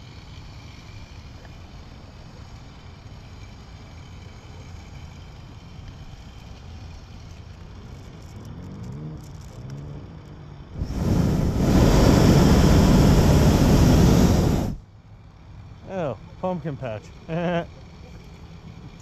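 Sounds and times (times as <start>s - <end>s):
faint wind: 0.0s - 19.0s
propane burner blast: 10.8s - 14.8s.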